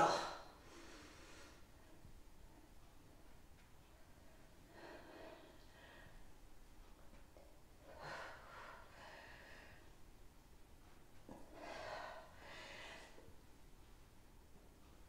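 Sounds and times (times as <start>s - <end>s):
woman breathing under exertion: 11.3s - 13.3s.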